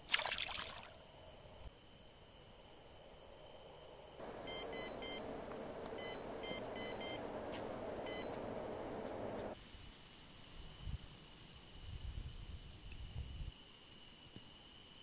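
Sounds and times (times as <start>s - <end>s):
bite alarm beeping: 4.2s - 9.6s
steady rushing noise: 4.2s - 9.6s.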